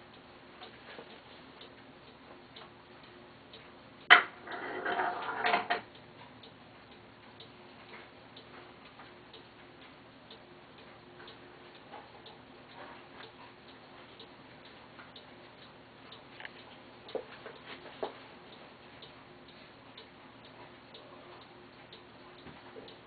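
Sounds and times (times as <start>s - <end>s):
clock mechanism ticking: 0.0s - 23.0s
steel ball clicking onto track: 4.1s - 5.9s.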